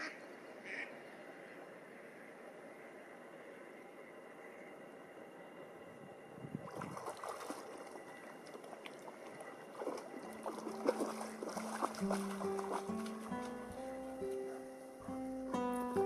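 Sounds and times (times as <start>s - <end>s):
lake water lapping on shore: 6.4s - 15.5s
low music notes: 10.8s - 16.0s.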